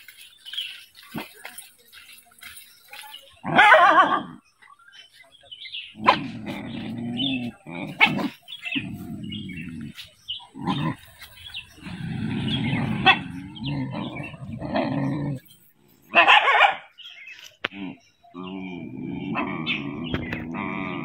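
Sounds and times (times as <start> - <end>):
dogs growling: 5.7 - 16.4, 17.7 - 21.0.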